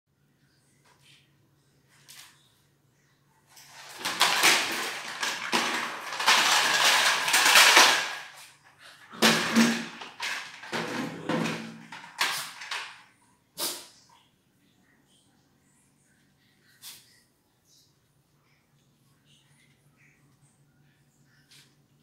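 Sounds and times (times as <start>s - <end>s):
dogs scuffling on tiled floor: 3.6s - 13.0s.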